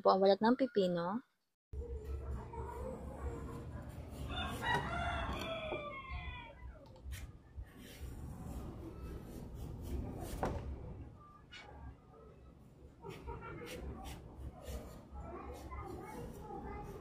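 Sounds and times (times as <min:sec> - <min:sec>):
rooster crowing: 0:04.3 - 0:06.6.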